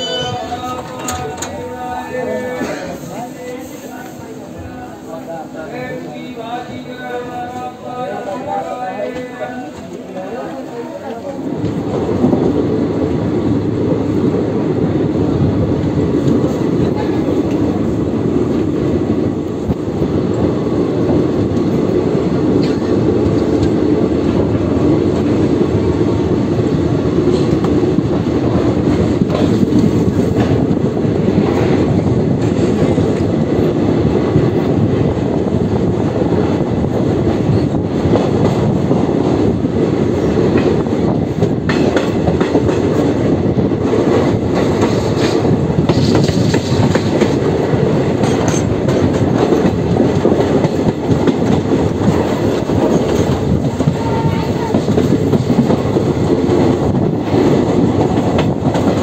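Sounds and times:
train wheels rumbling on rails: 0.0s - 59.0s.

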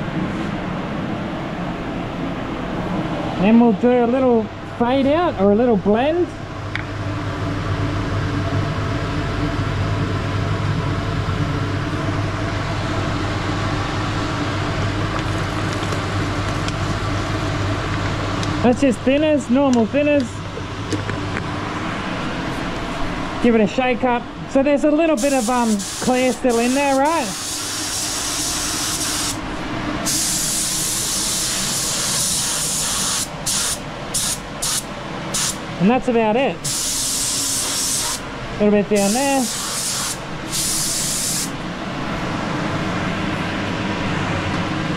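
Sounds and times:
machine motor humming with hiss: 25.2s - 29.4s, 30.0s - 35.6s, 36.6s - 38.3s, 39.0s - 41.6s.

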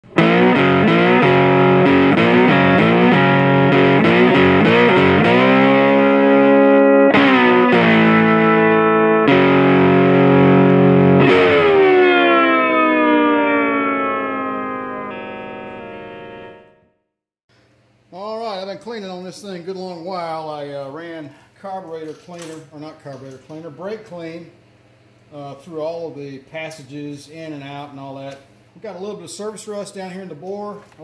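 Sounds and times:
distorted electric guitar chords: 0.0s - 17.0s.

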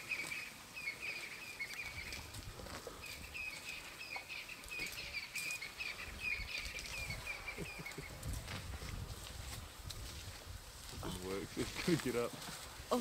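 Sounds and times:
bird chirping: 0.0s - 8.2s.

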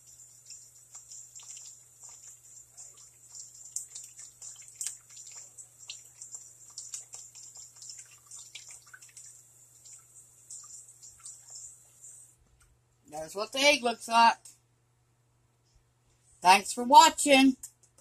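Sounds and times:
egg shell crackling: 0.0s - 11.9s
water dripping: 0.0s - 12.3s.

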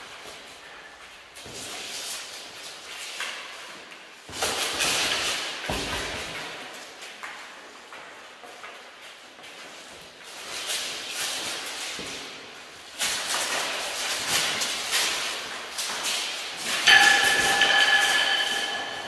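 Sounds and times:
mail armour jingling: 15.8s - 19.0s
clinks and knocks: 16.8s - 19.0s
metallic ringing: 16.8s - 19.0s.

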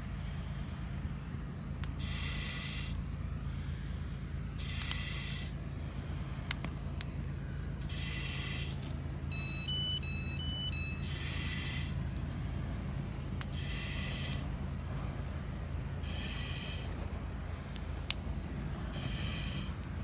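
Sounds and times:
steady low rumble: 0.0s - 20.0s
breathing through a mask: 2.0s - 6.4s, 7.8s - 8.9s, 11.1s - 12.5s, 13.5s - 14.5s, 16.0s - 17.8s, 18.8s - 19.8s
electronic beeps tune: 9.3s - 11.3s.

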